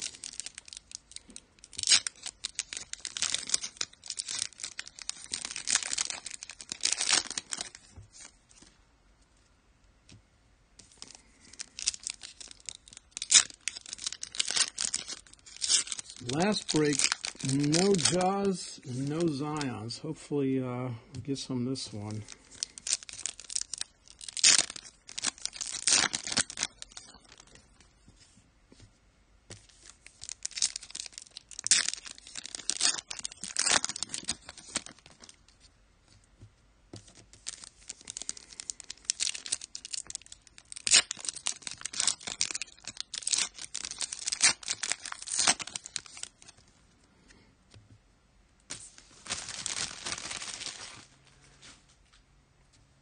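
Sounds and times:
wrappers tearing and crinkling: 0.0s - 8.3s, 10.8s - 19.9s, 21.7s - 27.8s, 29.6s - 35.6s, 37.0s - 46.6s, 48.7s - 51.2s.

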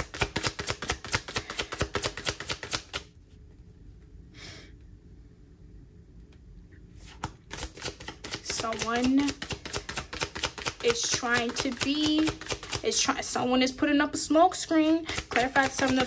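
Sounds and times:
cards shuffling: 0.0s - 3.4s, 7.0s - 12.8s, 14.8s - 16.0s.

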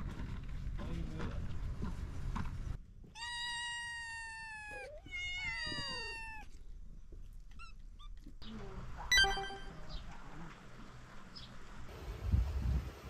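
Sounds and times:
cat meowing: 3.2s - 6.5s
faint short chirps: 9.1s - 10.0s.

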